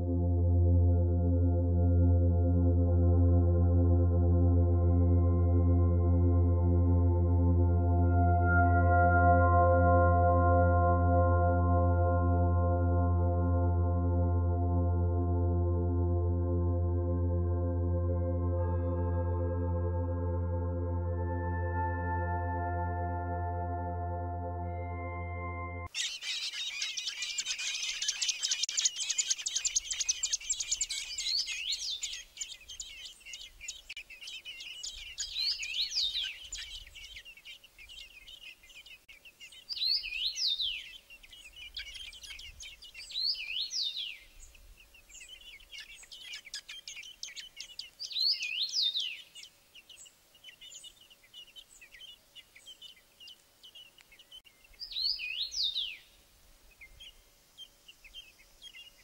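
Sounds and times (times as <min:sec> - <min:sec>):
nestlings begging calls: 0:25.9 - 0:56.1.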